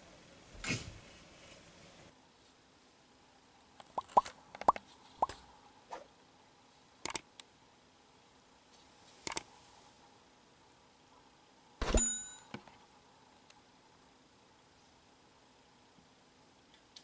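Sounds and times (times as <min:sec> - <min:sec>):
bubbly pops sweeping up: 0:03.9 - 0:05.4
mouse clicks: 0:07.0 - 0:07.5, 0:09.2 - 0:09.5.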